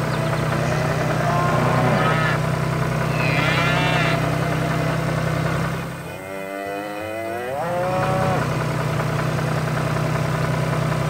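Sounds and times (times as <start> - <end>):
cows mooing: 0.0 - 8.6
tractor engine humming: 0.0 - 11.0.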